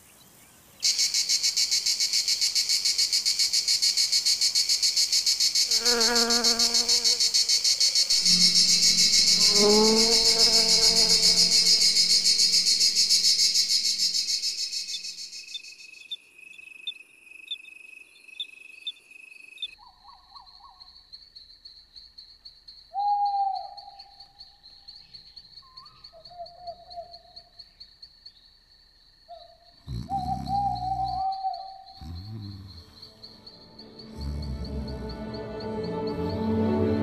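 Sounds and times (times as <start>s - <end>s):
cricket chirping: 0.0s - 37.0s
shimmering music: 8.1s - 14.0s, 32.8s - 37.0s
short lower animal calls: 29.3s - 33.0s.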